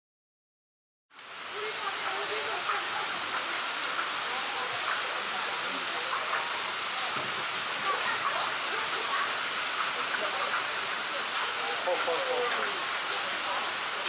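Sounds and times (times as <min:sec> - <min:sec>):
heavy rain and hail: 0:01.2 - 0:14.0.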